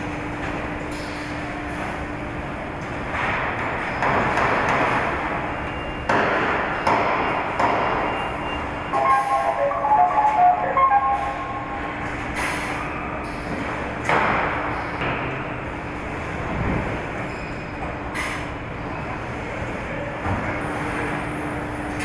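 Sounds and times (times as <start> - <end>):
factory noise bursts: 0.0 - 22.0
machinery low hum: 4.8 - 22.0
short beeping tones: 8.1 - 11.9.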